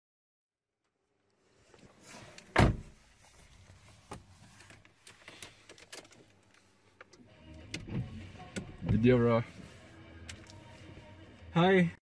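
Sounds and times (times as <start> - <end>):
faint clicks and rustles: 0.9 - 8.7
car door shutting: 2.4 - 3.0, 7.5 - 9.4.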